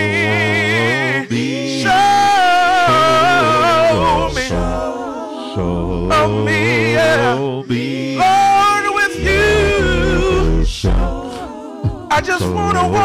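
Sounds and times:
gospel singers singing: 0:00.0 - 0:13.0.

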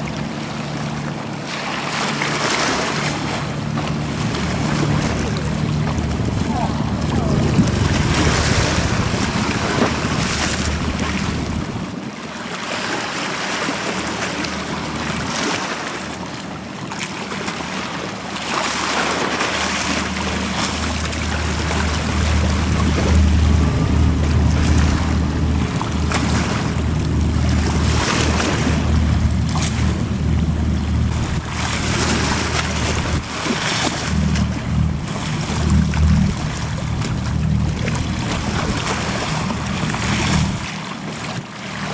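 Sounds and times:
ferry engine drone: 0:00.0 - 0:41.9
wake wash and choppy water: 0:00.0 - 0:41.9
wind buffeting microphone: 0:03.4 - 0:12.1, 0:19.3 - 0:41.9.

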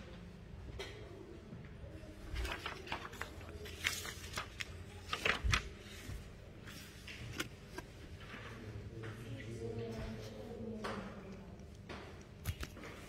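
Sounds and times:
paper rustling and crackling: 0:02.2 - 0:08.7, 0:11.9 - 0:13.0.

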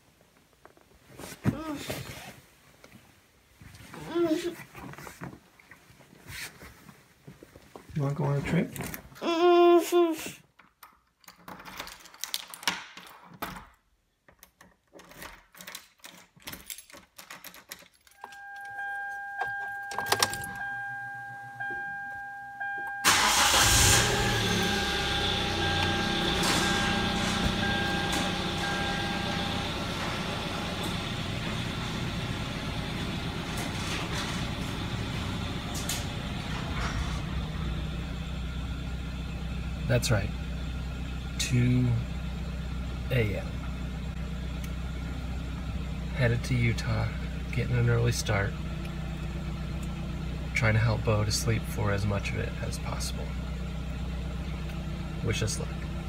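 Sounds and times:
car engine starting and idling: 0:18.2 - 0:56.0
steady electronic tone: 0:23.9 - 0:33.0.

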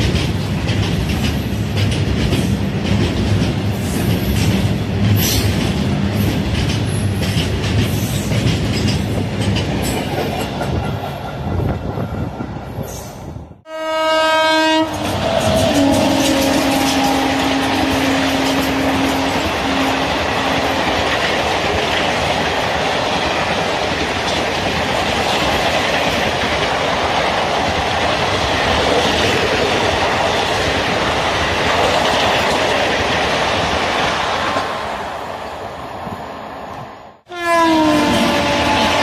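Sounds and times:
train wheels on rail clattering: 0:00.0 - 0:13.1, 0:14.8 - 0:34.8
locomotive horn: 0:13.7 - 0:21.0, 0:37.3 - 0:39.0.

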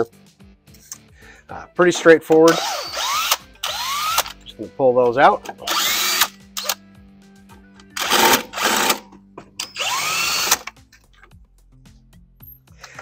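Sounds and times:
cordless power driver spinning: 0:02.5 - 0:04.4, 0:05.5 - 0:06.8, 0:08.0 - 0:09.0, 0:09.6 - 0:10.8.

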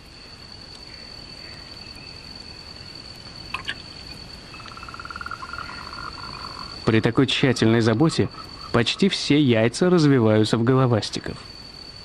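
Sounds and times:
cricket trill: 0:00.0 - 0:12.0
water drips: 0:03.1 - 0:09.0
tree frog pulsed call: 0:03.4 - 0:10.7.

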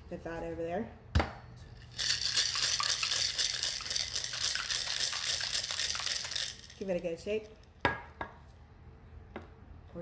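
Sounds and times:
ice rattling in cocktail shaker: 0:01.8 - 0:07.6.

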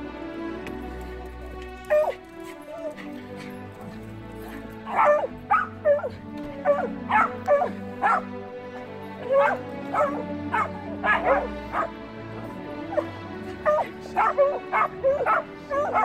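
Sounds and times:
string orchestra music: 0:00.0 - 0:16.0
dog barking: 0:04.9 - 0:08.3, 0:09.2 - 0:11.9, 0:12.9 - 0:16.0.

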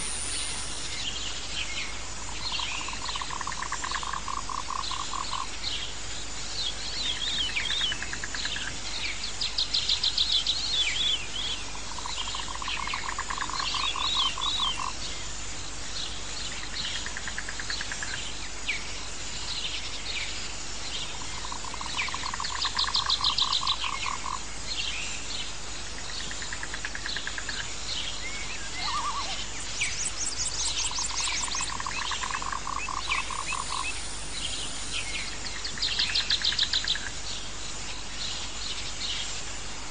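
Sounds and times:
birds chirping: 0:00.0 - 0:03.4, 0:27.1 - 0:39.3
frog pulsed trill: 0:31.0 - 0:35.0.

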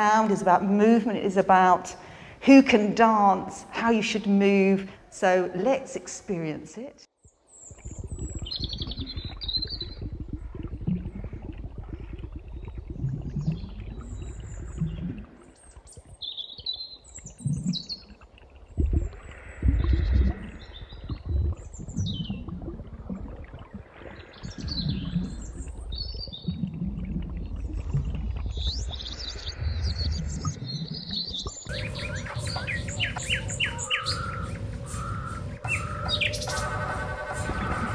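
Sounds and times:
birds chirping and whistling: 0:07.5 - 0:10.1, 0:28.6 - 0:37.9
water rushing: 0:27.2 - 0:37.9.

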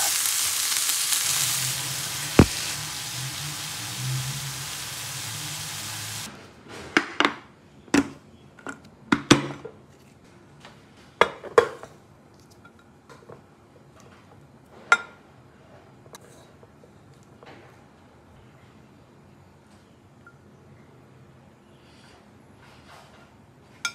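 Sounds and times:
food sizzling in a frying pan: 0:00.0 - 0:06.3.

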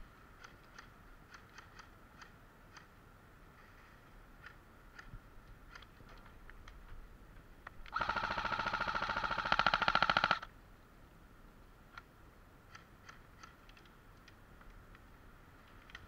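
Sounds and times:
airsoft rifle full-auto burst: 0:07.9 - 0:10.5.

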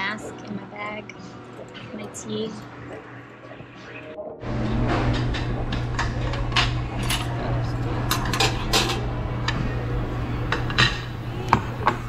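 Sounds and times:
steady low hum: 0:00.0 - 0:12.0
plates clinking on table: 0:08.0 - 0:09.1.

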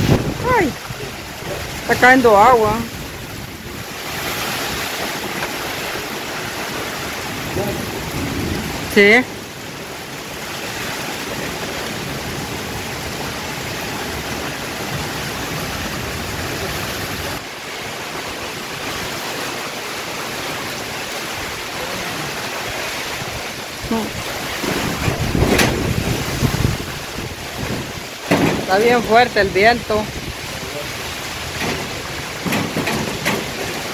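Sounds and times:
wind gusts buffeting microphone: 0:00.0 - 0:09.7, 0:22.4 - 0:33.9
heavy rain: 0:00.0 - 0:33.9
wind in trees: 0:00.0 - 0:33.9.

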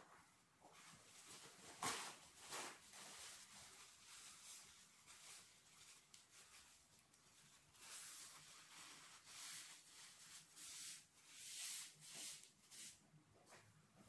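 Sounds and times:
soft rubbing swishes on fur: 0:07.4 - 0:13.6.

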